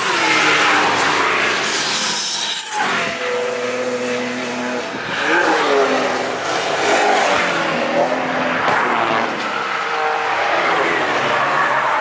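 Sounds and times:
car engine driven hard: 0:02.8 - 0:12.0.

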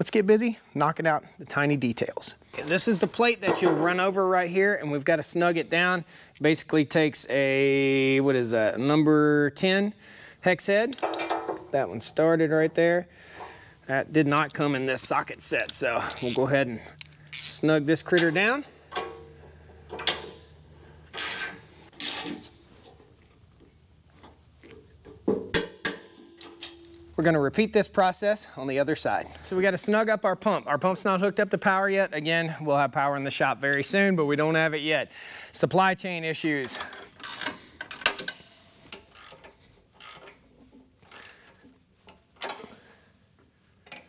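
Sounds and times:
hand ratchet ratcheting: 0:17.0 - 0:20.3, 0:36.8 - 0:42.8
wrenches clicking on a bolt: 0:36.7 - 0:42.8.

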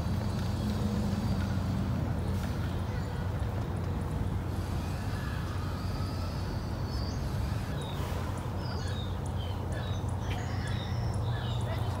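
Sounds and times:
small birds chirping: 0:06.6 - 0:12.0.

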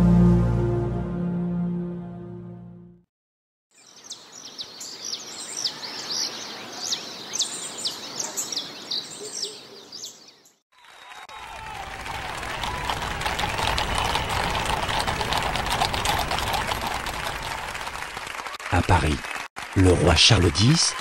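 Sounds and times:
birds chirping: 0:03.8 - 0:10.6.

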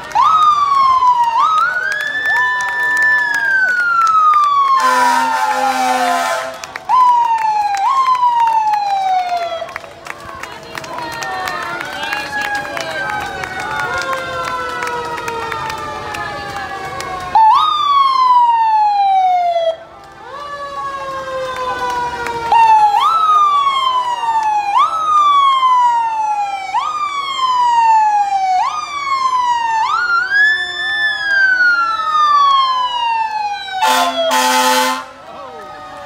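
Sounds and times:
fire engine sirens wailing: 0:00.0 - 0:36.0
horn blast: 0:04.8 - 0:06.8, 0:33.8 - 0:35.2.

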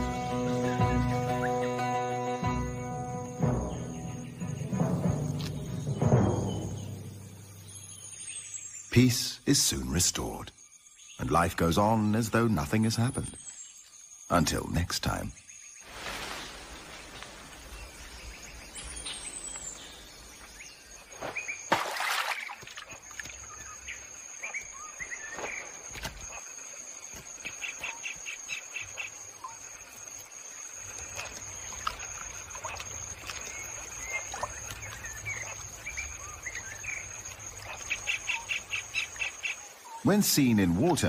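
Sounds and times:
bird chirps: 0:00.2 - 0:15.8, 0:22.4 - 0:26.4.

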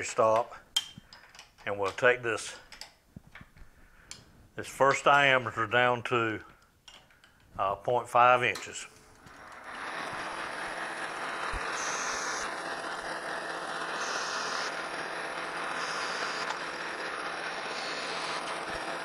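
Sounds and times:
metal lathe cutting: 0:09.4 - 0:19.0.

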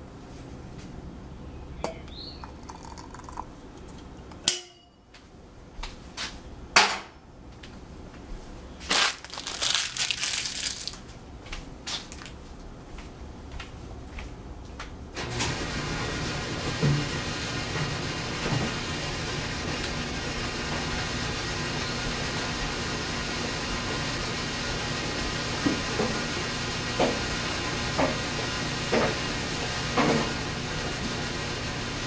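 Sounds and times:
tea strainer clinking on teapot: 0:02.4 - 0:03.4
rustling: 0:08.8 - 0:11.1.

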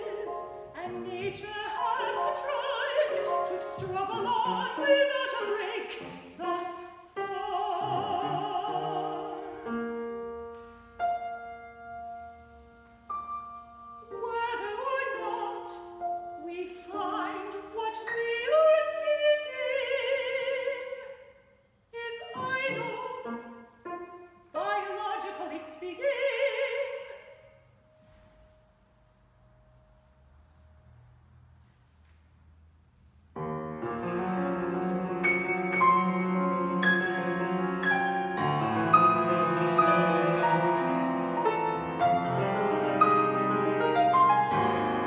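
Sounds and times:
woman singing classical song: 0:00.0 - 0:10.3, 0:13.2 - 0:27.6
grand piano accompaniment: 0:00.0 - 0:21.3, 0:21.9 - 0:45.0.

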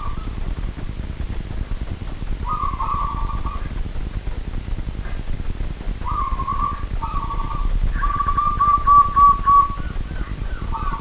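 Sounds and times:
dove cooing song: 0:00.0 - 0:01.0, 0:02.3 - 0:03.9, 0:05.0 - 0:11.0.

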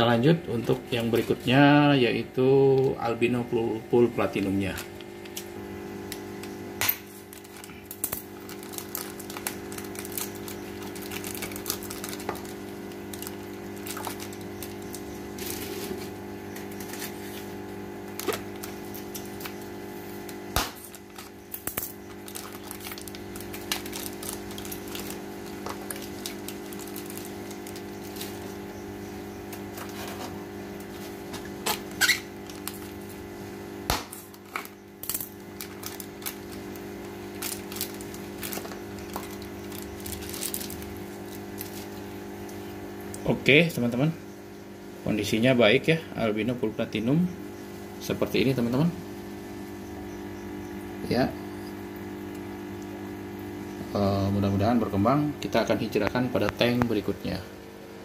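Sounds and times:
steady low hum: 0:00.0 - 0:58.0
plastic bag crinkling: 0:04.3 - 0:19.6, 0:20.2 - 0:28.7, 0:30.8 - 0:33.4, 0:34.1 - 0:42.5.

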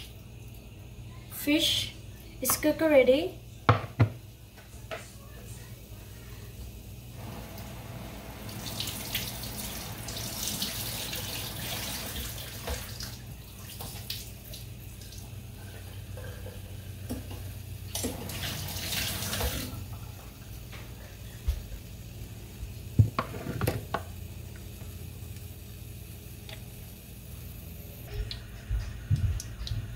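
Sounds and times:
tap water running into sink: 0:07.4 - 0:15.3, 0:16.3 - 0:20.2.

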